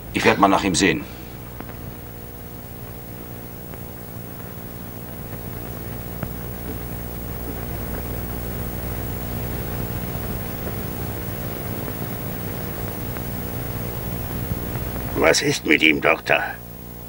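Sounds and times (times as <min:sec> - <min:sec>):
film soundtrack hum and hiss: 0:00.0 - 0:17.0
faint clicks: 0:12.6 - 0:13.4.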